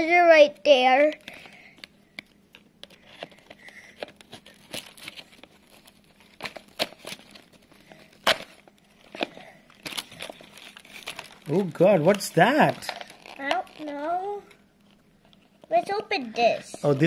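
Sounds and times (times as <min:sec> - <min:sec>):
packaging crinkling and tearing: 0:01.2 - 0:17.0.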